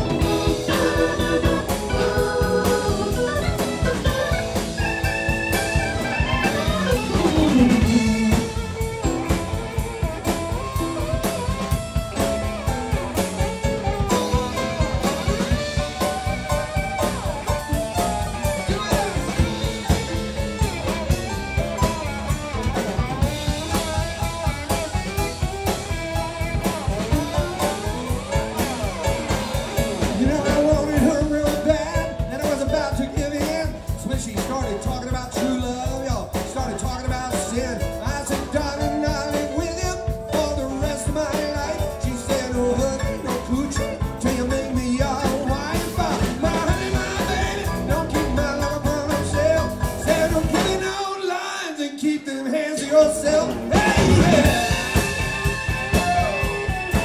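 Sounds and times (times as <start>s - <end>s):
electric guitar solo: 0.0s - 30.6s, 53.5s - 57.0s
bass guitar: 0.0s - 51.1s, 52.8s - 57.0s
drum kit: 0.0s - 51.2s, 52.8s - 57.0s.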